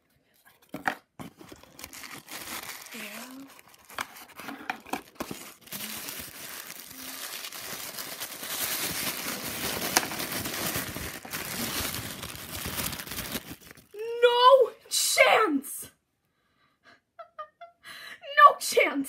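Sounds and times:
plastic wrapping crinkling: 1.2 - 14.0.

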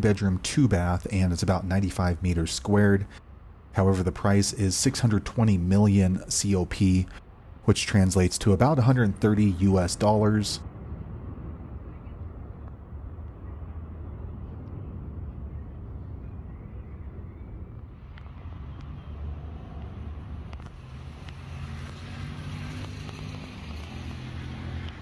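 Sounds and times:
vehicle low rumble: 0.0 - 25.0
low engine hum: 9.0 - 25.0.

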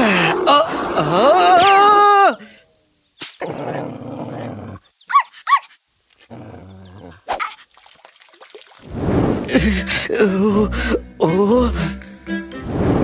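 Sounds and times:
small dog growling: 3.4 - 4.8, 6.2 - 7.2
dog yapping: 5.1 - 5.8.

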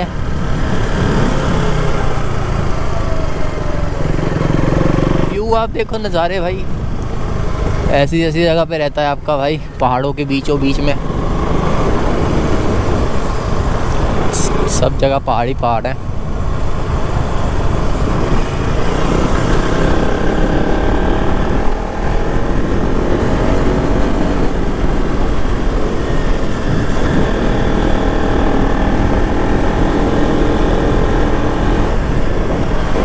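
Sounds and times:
motorcycle engine running: 0.0 - 8.1, 16.0 - 33.0
wind on microphone: 16.1 - 33.0.

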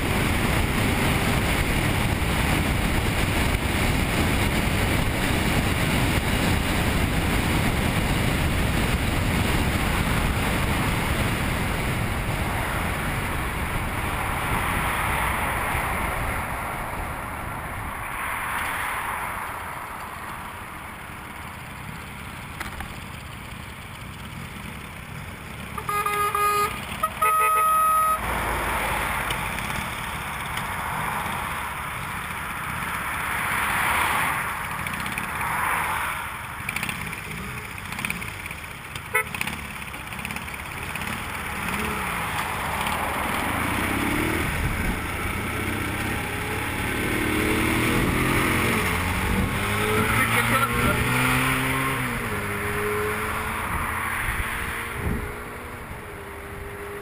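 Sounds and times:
wind rushing over microphone: 0.0 - 19.6, 42.1 - 56.8
motorcycle engine running: 20.9 - 28.1, 36.4 - 51.0
short horn toots: 25.8 - 28.3, 39.1 - 39.4.

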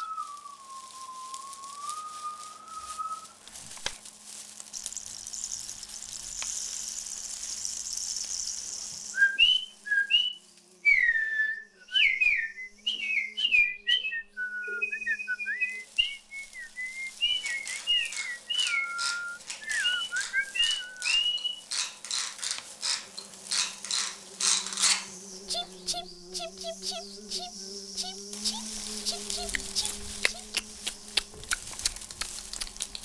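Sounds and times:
person whistling bird calls: 0.0 - 3.4, 9.1 - 21.6
steady hiss: 0.0 - 10.6, 15.7 - 33.0.

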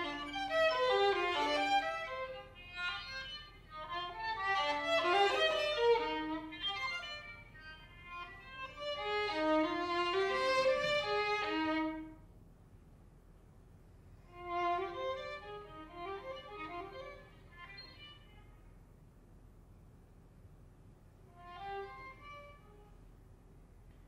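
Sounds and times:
solo violin playing: 0.0 - 12.2, 14.3 - 18.5, 21.3 - 23.0.

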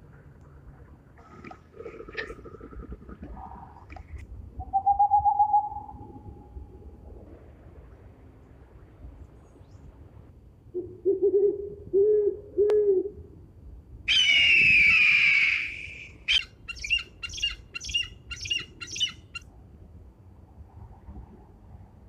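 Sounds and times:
eagle screaming: 14.1 - 19.2
owl hooting: 14.1 - 19.4
short high piping calls: 14.1 - 19.4.

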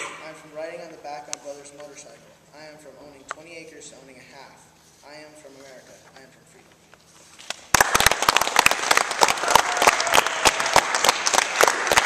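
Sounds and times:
audience applauding: 7.7 - 12.0.

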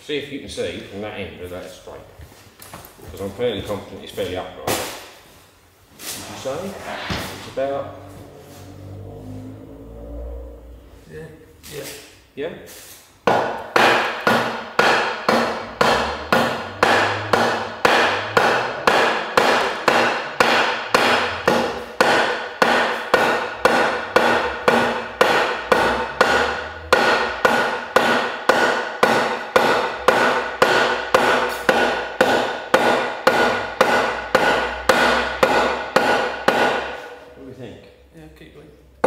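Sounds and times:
hammer blows on wooden block: 13.2 - 37.2.

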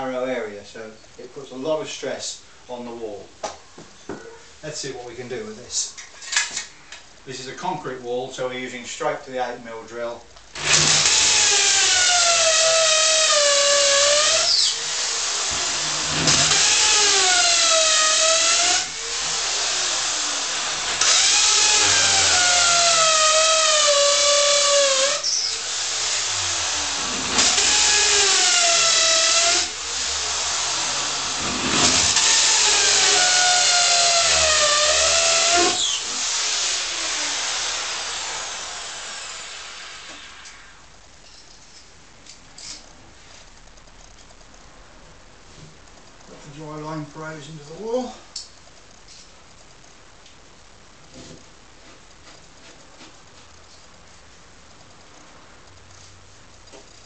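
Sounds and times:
electric drill boring into concrete: 10.6 - 40.8.

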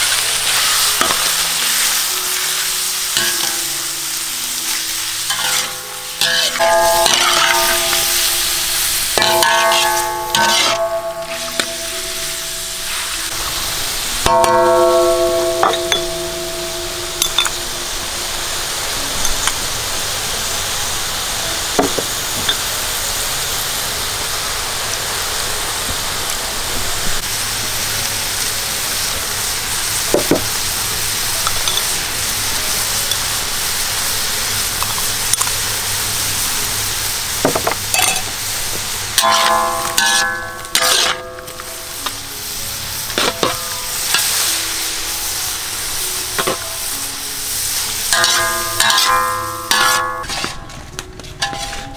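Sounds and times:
food sizzling in a wok: 0.0 - 51.9
metal spatula scraping a wok: 4.6 - 14.4, 39.2 - 45.4, 46.3 - 51.9.

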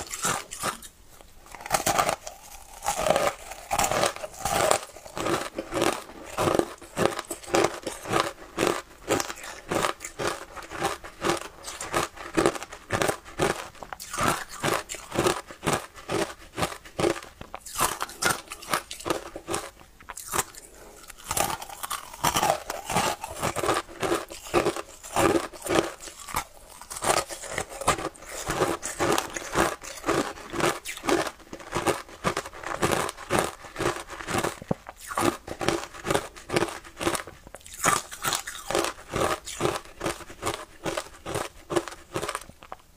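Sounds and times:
crunching and chewing ice: 0.0 - 42.9.

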